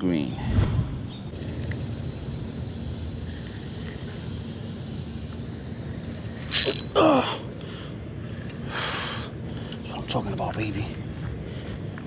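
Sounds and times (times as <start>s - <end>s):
high hiss: 0.6s - 7.9s.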